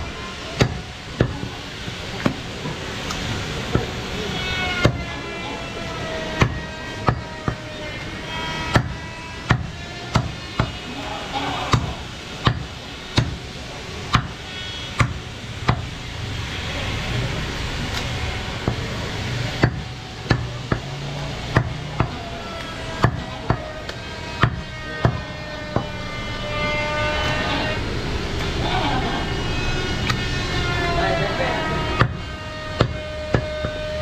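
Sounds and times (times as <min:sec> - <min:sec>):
cleaver chopping on wooden block: 0:08.7 - 0:10.8, 0:11.7 - 0:13.4, 0:14.1 - 0:14.4, 0:19.6 - 0:20.9, 0:21.5 - 0:22.2, 0:24.4 - 0:25.2, 0:32.8 - 0:33.8.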